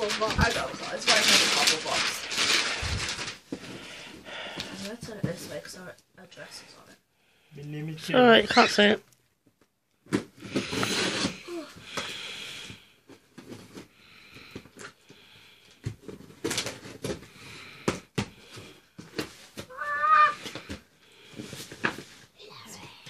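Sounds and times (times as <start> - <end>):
tape tearing: 10.1 - 11.6
wavering pitched cry: 19.7 - 20.4.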